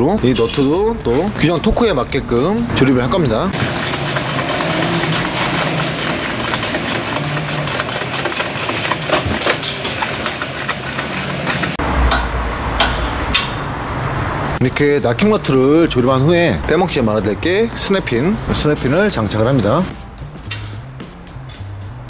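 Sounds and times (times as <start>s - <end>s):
ratchet wrench clicking: 3.6s - 11.8s.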